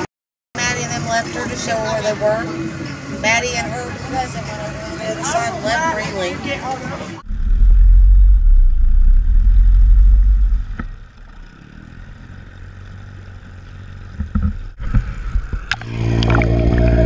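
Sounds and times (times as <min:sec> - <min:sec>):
boat motor running: 0:07.2 - 0:17.0
water rushing over camera housing: 0:14.2 - 0:17.0
water splashes: 0:14.8 - 0:17.0.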